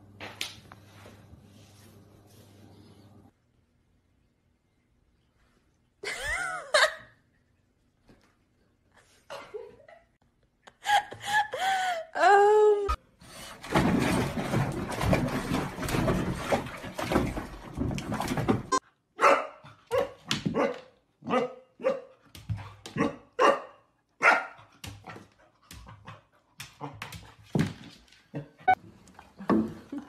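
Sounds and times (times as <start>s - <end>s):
dog splashing in bathwater: 13.5s - 18.8s
puppy barking: 19.2s - 22.1s, 23.0s - 24.6s.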